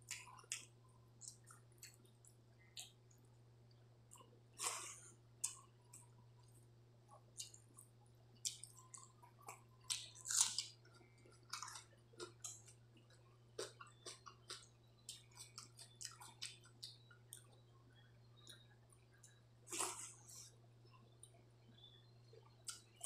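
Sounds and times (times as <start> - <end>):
chewing and lip smacks: 0.0 - 17.6, 22.4 - 23.0.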